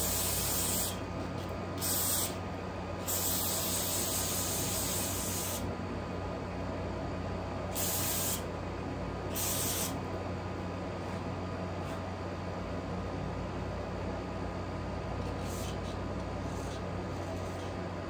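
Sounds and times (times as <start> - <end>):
aerosol spray can hissing: 1.8 - 2.3, 3.1 - 5.6, 7.8 - 8.4.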